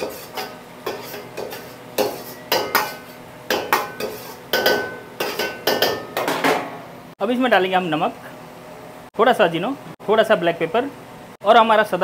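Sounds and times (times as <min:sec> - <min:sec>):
metal utensil scraping cooking pan: 0:00.0 - 0:06.8.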